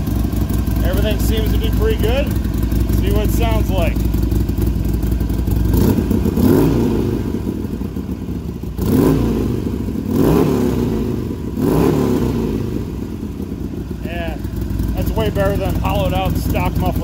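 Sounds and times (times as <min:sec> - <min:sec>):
motorcycle engine idling and revving: 0:00.0 - 0:17.0.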